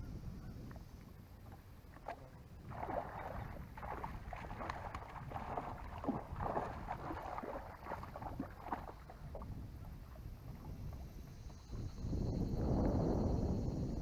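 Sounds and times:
wind rumble on microphone: 0.0 - 14.0
fish splashing water: 1.9 - 9.5.

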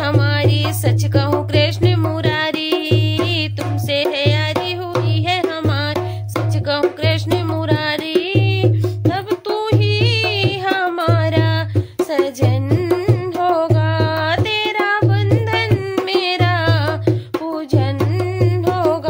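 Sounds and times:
drum beat: 0.0 - 19.0
tabla: 0.0 - 19.0
woman singing: 0.0 - 19.0.

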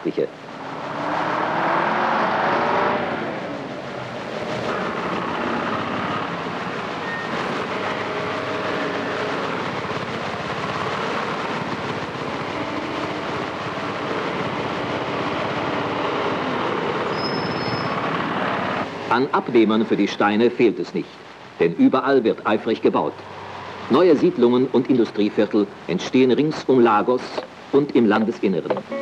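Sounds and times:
vehicle engines and road noise: 0.0 - 29.0
lorry engine pulling away: 0.4 - 18.9.

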